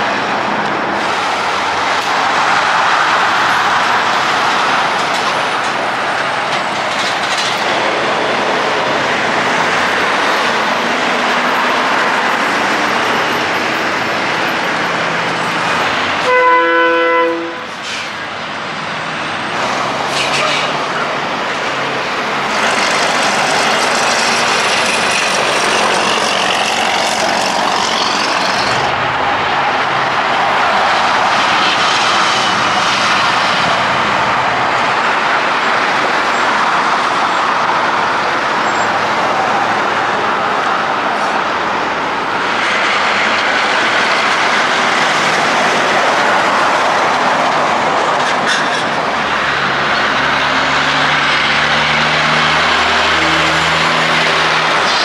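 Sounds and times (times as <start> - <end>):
highway traffic driving past: 0.0 - 55.0
loud truck horn blast: 16.2 - 18.0, 51.9 - 55.0.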